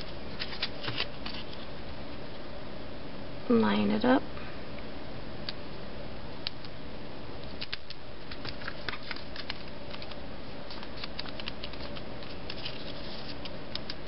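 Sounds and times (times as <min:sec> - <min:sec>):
steady background hiss: 0:00.0 - 0:14.0
cardstock clicks and taps: 0:07.6 - 0:12.6.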